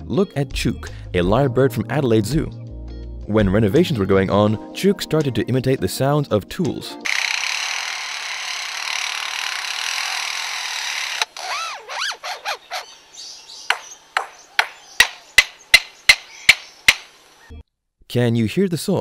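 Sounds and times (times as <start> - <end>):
bird rasping like a saw: 7.1 - 13.0
bird drill-like whirs: 7.1 - 13.1
bird hammer-like knocks: 13.7 - 17.1.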